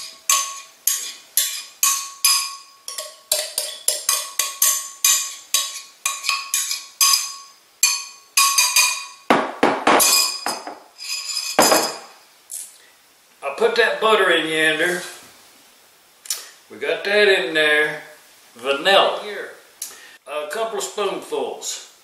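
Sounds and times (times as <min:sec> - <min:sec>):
utensil clinking against bowl: 0:00.0 - 0:09.2.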